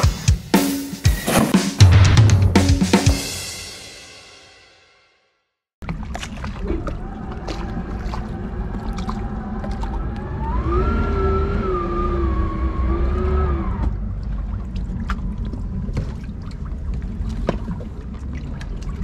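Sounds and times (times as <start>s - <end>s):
boat engine idling: 5.8s - 19.0s.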